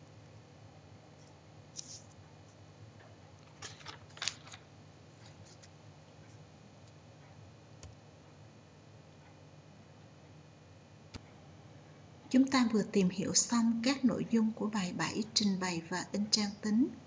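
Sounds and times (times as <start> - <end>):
rustling clicks: 3.4 - 4.6.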